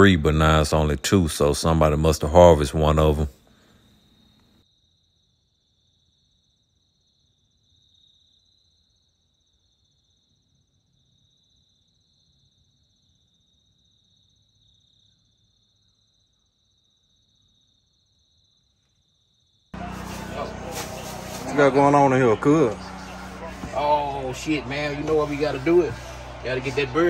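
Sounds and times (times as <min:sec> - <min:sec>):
faint cricket trill: 0:03.5 - 0:19.9.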